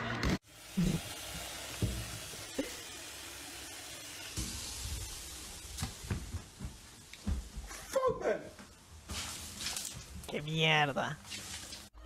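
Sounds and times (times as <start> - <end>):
tap water running into bowl: 1.3 - 2.7.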